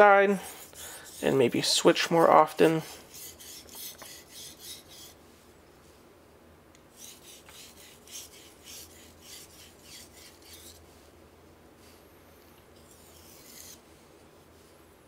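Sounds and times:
knife scraping on whetstone: 0:00.4 - 0:05.2, 0:06.9 - 0:10.8, 0:12.8 - 0:13.8.

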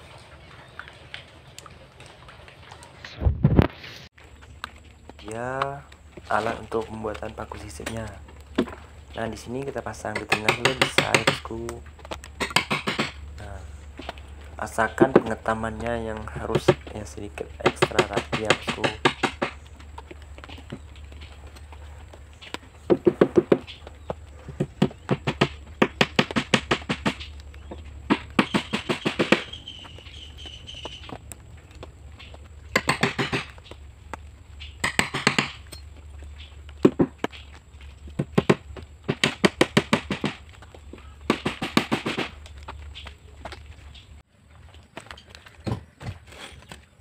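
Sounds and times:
hammer tapping nails into wood: 0:10.1 - 0:11.5, 0:12.4 - 0:13.2, 0:17.6 - 0:19.6, 0:24.6 - 0:27.2, 0:32.7 - 0:33.6, 0:34.8 - 0:35.8, 0:38.2 - 0:40.4.

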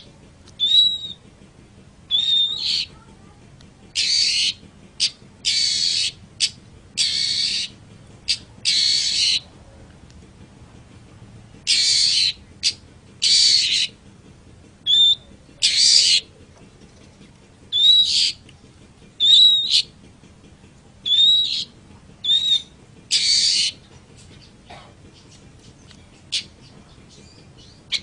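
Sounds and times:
shrike harsh rasping calls: 0:00.0 - 0:01.2, 0:02.1 - 0:03.1, 0:03.9 - 0:09.5, 0:11.6 - 0:14.0, 0:14.9 - 0:16.3, 0:17.7 - 0:18.4, 0:19.2 - 0:20.0, 0:21.0 - 0:25.3
whistled bird notes: 0:00.6 - 0:01.2, 0:02.1 - 0:02.9, 0:14.9 - 0:16.3, 0:17.7 - 0:18.4, 0:19.2 - 0:19.9, 0:21.0 - 0:23.8.

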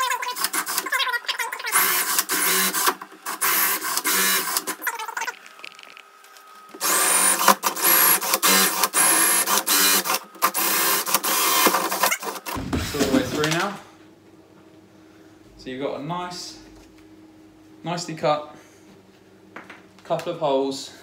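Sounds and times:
drill cutting hole in wooden door: 0:01.7 - 0:04.9, 0:06.7 - 0:12.6.

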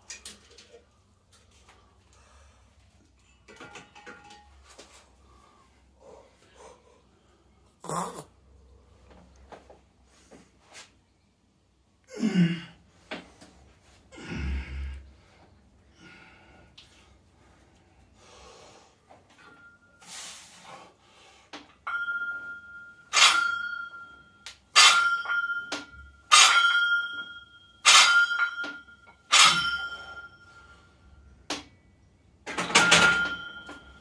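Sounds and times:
barbell plates clanging: 0:21.8 - 0:30.8, 0:32.4 - 0:34.0
barbell clatter: 0:23.1 - 0:24.0, 0:24.7 - 0:30.3, 0:32.5 - 0:34.0.

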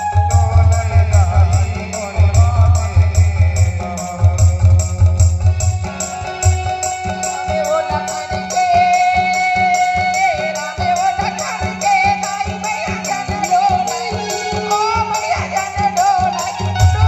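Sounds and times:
wavering melody line: 0:00.0 - 0:03.1
drum strokes: 0:00.0 - 0:08.6, 0:13.9 - 0:17.0
jingling percussion: 0:00.0 - 0:17.0.

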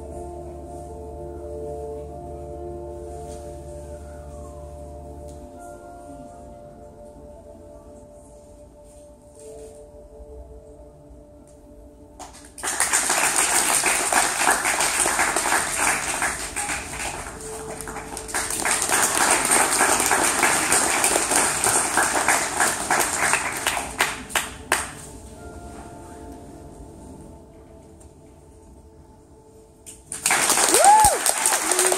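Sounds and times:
soft music with held tones: 0:00.0 - 0:31.9
audience applauding: 0:12.2 - 0:25.0, 0:30.1 - 0:31.9.

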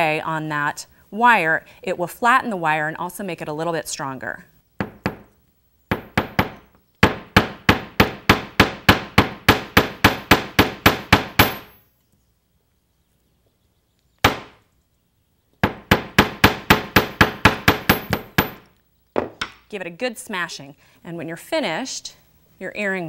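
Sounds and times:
hammer tapping wire on steel plate: 0:05.9 - 0:11.7.

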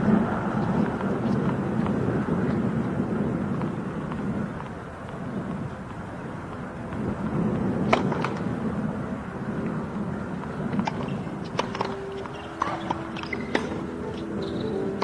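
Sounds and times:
low outdoor rumble: 0:00.0 - 0:15.0
tennis ball bouncing on hard court: 0:03.5 - 0:08.5, 0:10.4 - 0:15.0.

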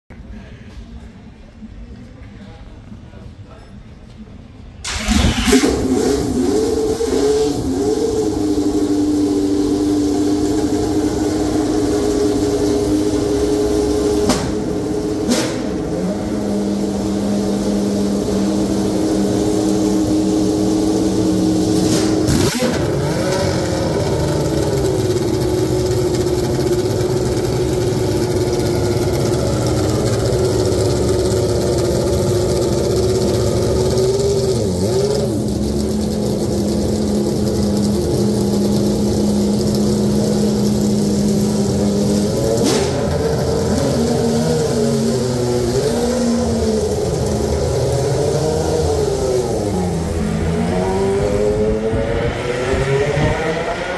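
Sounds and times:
sharp engine cracks: 0:04.8 - 0:06.1
racing car engine idling: 0:04.9 - 0:52.0.

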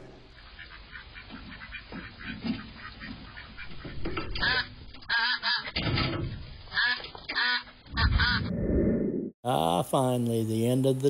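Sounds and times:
ducks quacking: 0:00.4 - 0:05.8, 0:06.7 - 0:08.5.

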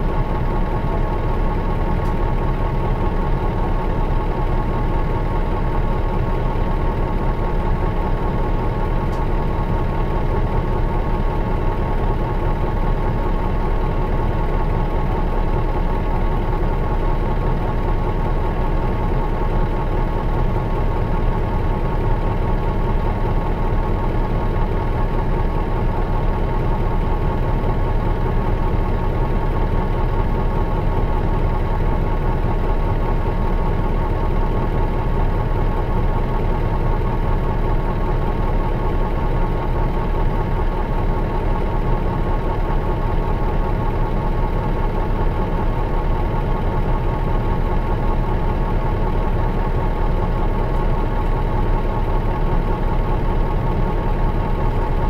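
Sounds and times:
diesel bus engine idling: 0:00.0 - 0:55.0.

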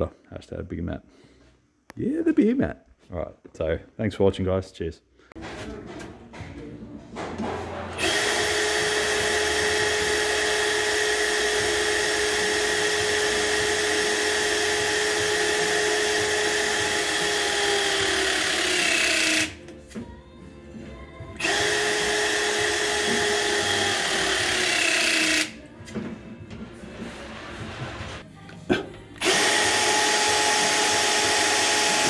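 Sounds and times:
hydraulic crimper motor whining: 0:07.9 - 0:19.7, 0:21.4 - 0:25.6, 0:29.2 - 0:32.0.

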